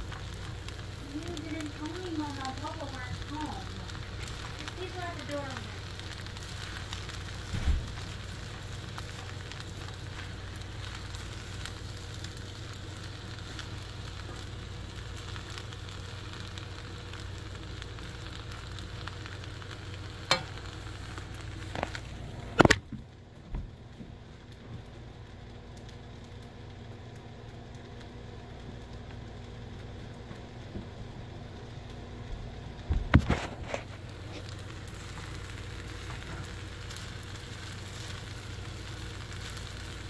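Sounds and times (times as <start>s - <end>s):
fried rice sizzling in a wok: 0.0s - 40.0s
spatula stirring in a wok: 3.2s - 22.1s
sharp knocks on the pan: 20.3s - 20.5s.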